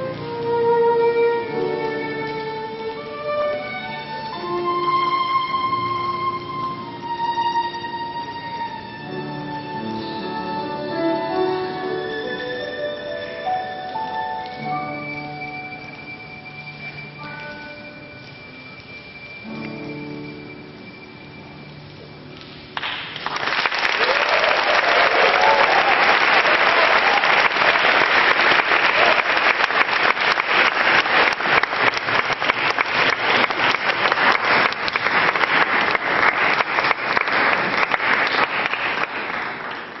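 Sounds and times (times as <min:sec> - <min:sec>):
violin and piano chord: 0:00.0 - 0:21.9
audience applause: 0:22.8 - 0:40.0.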